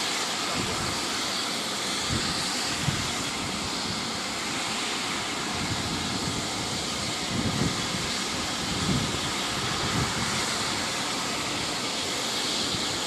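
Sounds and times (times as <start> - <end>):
steam venting hiss: 0.0 - 13.0
wind rumble on microphone: 2.0 - 4.0, 5.4 - 11.0.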